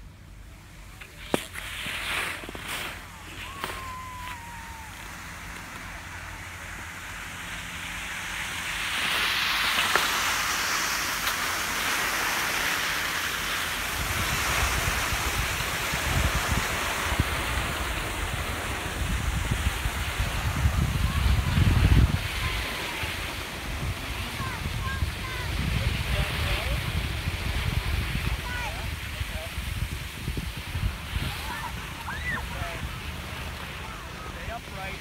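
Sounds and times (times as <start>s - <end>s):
skis sliding over packed snow: 0.9s - 35.0s
wind buffeting microphone: 13.8s - 35.0s.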